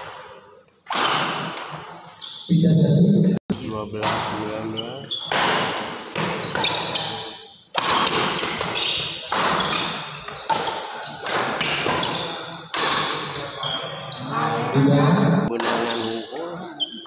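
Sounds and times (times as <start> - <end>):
shoes squeaking on wooden floor: 4.7 - 14.6, 16.8 - 17.0
racket striking shuttlecock: 7.7 - 12.2.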